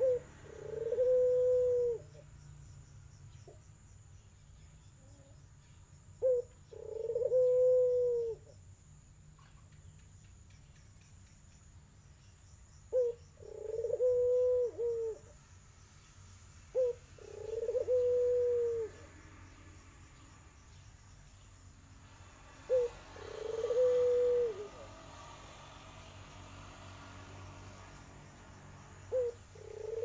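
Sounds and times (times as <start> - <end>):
dove cooing: 0.0 - 2.2, 6.2 - 8.5, 12.9 - 15.4, 16.7 - 19.2, 22.6 - 25.2, 29.1 - 30.0.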